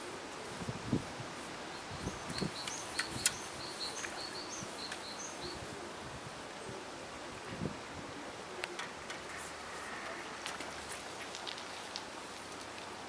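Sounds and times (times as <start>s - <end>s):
steady outdoor hiss: 0.0s - 13.0s
small bird chirping: 1.7s - 5.6s
sharp clicks: 2.3s - 3.4s.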